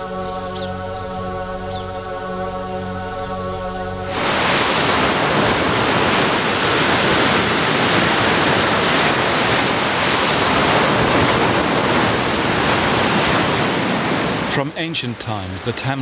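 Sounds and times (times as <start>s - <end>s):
waves breaking: 3.9s - 16.0s.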